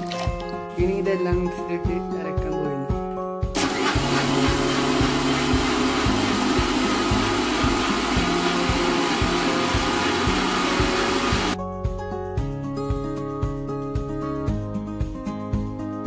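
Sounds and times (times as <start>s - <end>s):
mixer grinder whirring: 3.6s - 11.6s.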